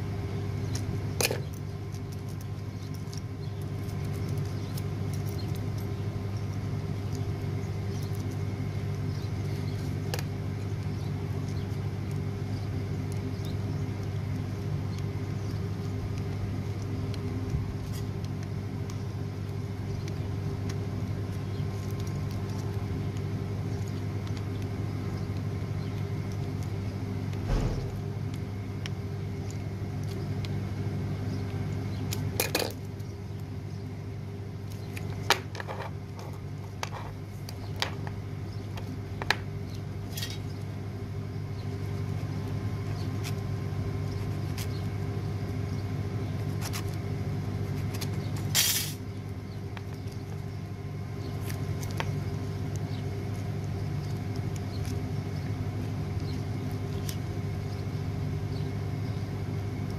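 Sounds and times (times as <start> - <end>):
low machine hum: 0.0 - 59.9.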